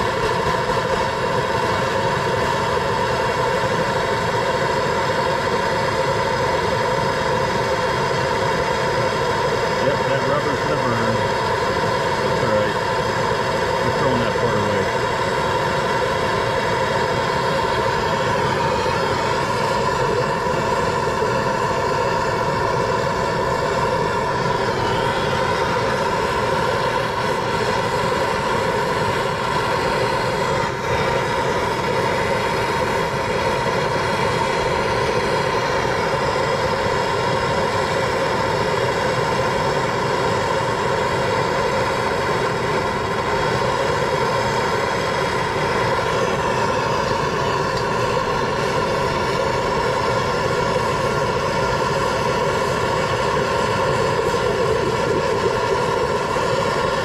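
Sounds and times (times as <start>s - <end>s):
gas torch hissing: 0.0s - 57.0s.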